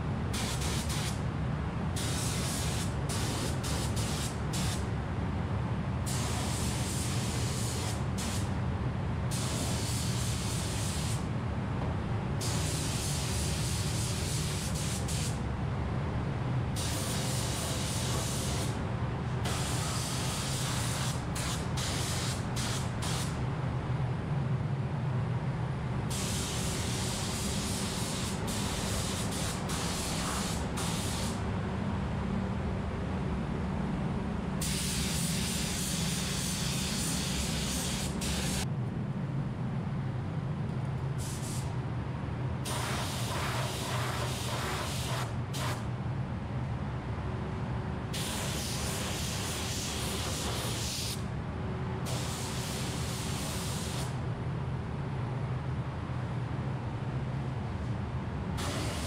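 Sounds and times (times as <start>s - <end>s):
steady low hum: 0.0s - 50.6s
spray gun hissing: 0.4s - 1.2s, 2.0s - 4.8s, 6.1s - 8.5s, 9.3s - 11.2s, 12.4s - 15.4s, 16.8s - 18.8s, 19.5s - 23.4s, 26.1s - 31.4s, 34.6s - 38.6s, 42.7s - 45.8s, 48.2s - 51.2s, 52.1s - 54.1s, 58.6s - 59.0s.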